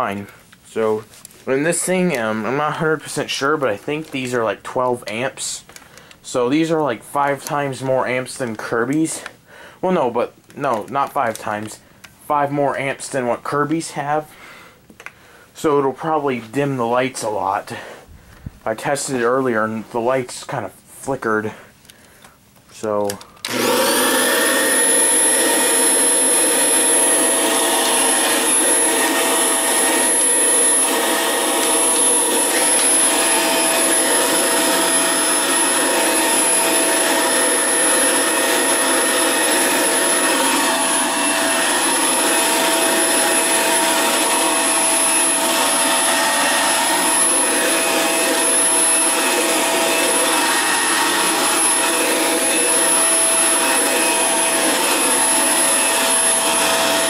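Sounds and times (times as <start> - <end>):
vacuum cleaner running: 23.4 - 57.0
high-pitched motor whine: 23.5 - 57.0.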